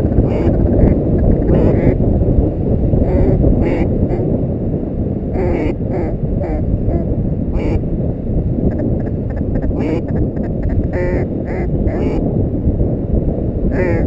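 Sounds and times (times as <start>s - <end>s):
wind rumble on microphone: 0.0s - 14.0s
duck-like quacking calls: 0.2s - 2.0s, 3.0s - 4.2s, 5.4s - 7.8s, 8.7s - 12.2s, 13.7s - 14.0s.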